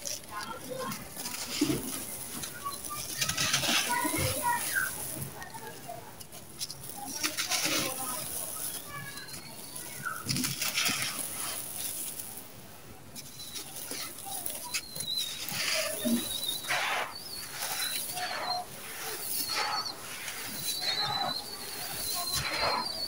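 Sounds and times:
dry powder sifting: 0.0s - 23.0s
gritty crunching in hands: 13.2s - 23.0s.

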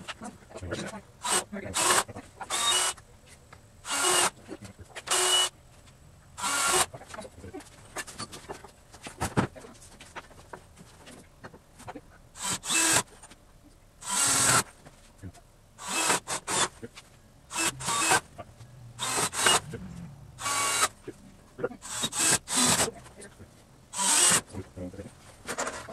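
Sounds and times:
cordless drill driving screws: 1.2s - 3.0s, 3.8s - 4.4s, 5.1s - 5.5s, 6.4s - 6.9s, 12.4s - 13.1s, 14.0s - 14.7s, 15.8s - 16.7s, 17.5s - 18.2s, 19.0s - 19.7s, 20.4s - 21.0s, 21.8s - 23.0s, 23.9s - 24.6s.

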